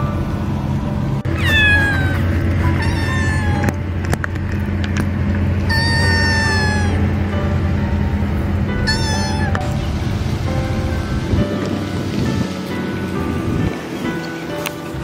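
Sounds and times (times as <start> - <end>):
kitten meowing: 1.3 - 3.8, 5.7 - 7.1, 8.8 - 9.8.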